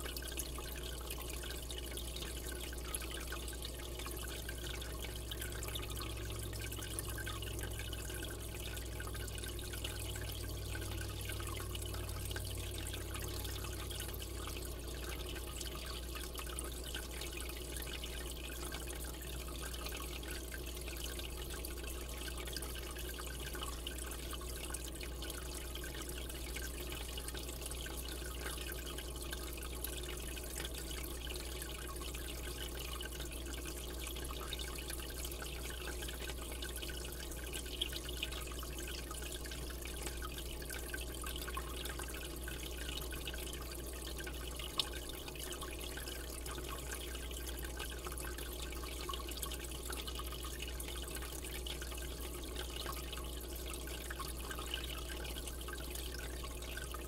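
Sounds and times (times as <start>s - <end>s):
low steady hum: 0.0s - 57.0s
water trickling and bubbling: 0.0s - 57.0s.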